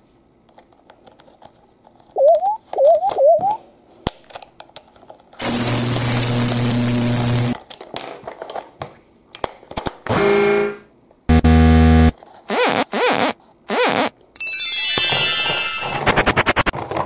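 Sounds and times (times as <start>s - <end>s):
tinny electronic tune: 10.1s - 16.7s
buzzy horn-like tone: 10.2s - 14.1s
electronic toy tones: 10.2s - 16.0s.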